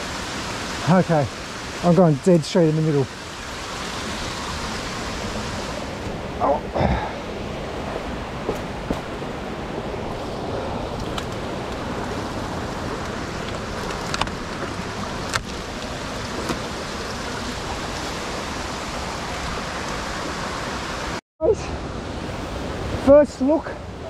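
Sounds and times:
waterfall rushing: 0.0s - 24.0s.

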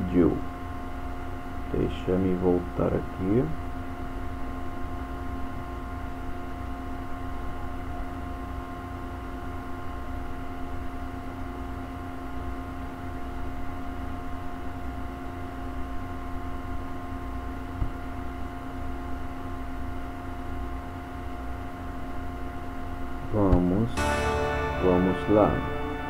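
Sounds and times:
background hum and hiss: 0.0s - 26.0s
constant tones: 23.9s - 26.0s.

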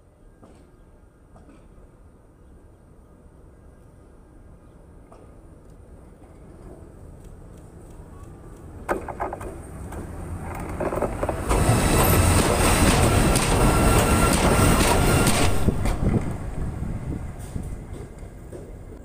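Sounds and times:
electric locomotive rolling: 6.1s - 19.0s
wheel-on-rail noise: 6.1s - 19.0s.

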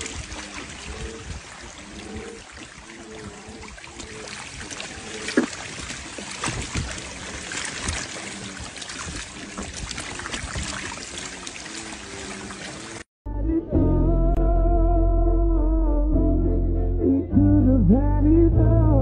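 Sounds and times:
air bubbles rising through water: 0.0s - 13.0s.

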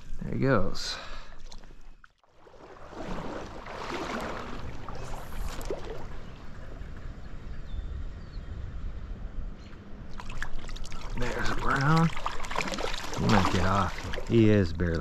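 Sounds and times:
stream water running: 0.7s - 7.4s, 10.0s - 15.0s
wind buffeting microphone: 2.8s - 15.0s.

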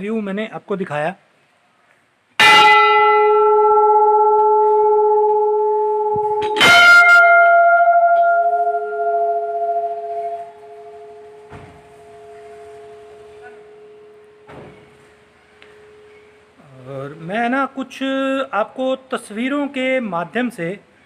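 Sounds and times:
temple bell ringing: 2.4s - 16.6s.

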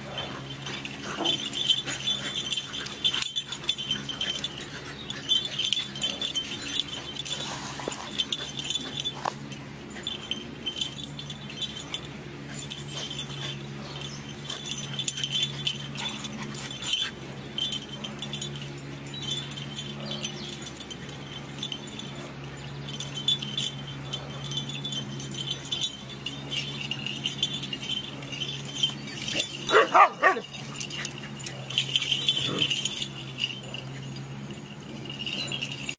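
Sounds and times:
collar tags jingling: 0.0s - 35.9s
dog growling: 29.3s - 34.2s
dog barking: 29.7s - 30.5s.

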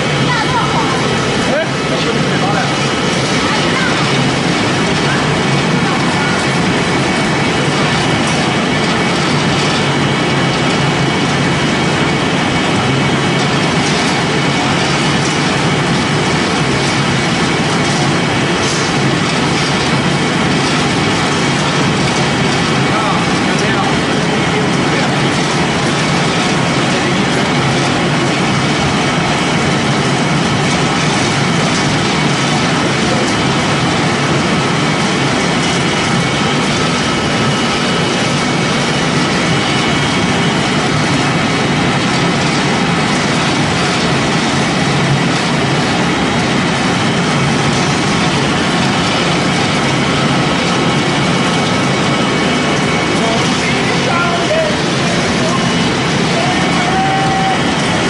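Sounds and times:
pellet mill running: 0.0s - 58.0s.

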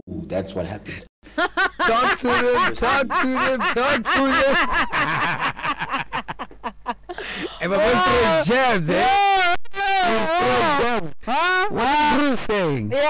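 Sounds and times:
woman laughing loudly: 1.3s - 8.3s.

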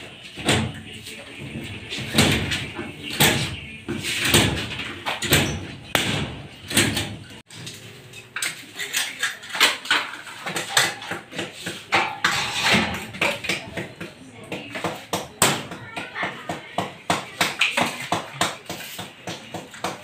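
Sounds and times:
indistinct voices: 0.0s - 7.4s
tools knocking and clattering: 1.4s - 14.2s.

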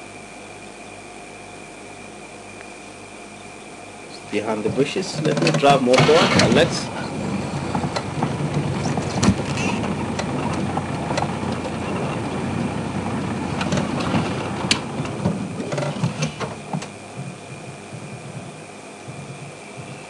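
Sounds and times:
vehicle engine running steadily: 4.1s - 20.0s
knocks and rattles from rough ground: 4.2s - 20.0s.

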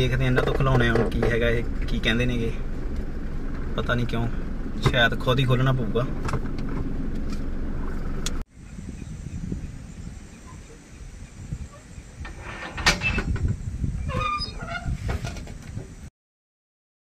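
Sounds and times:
low steady rumble: 0.0s - 16.1s
steel gate latch clanking: 12.3s - 13.4s.

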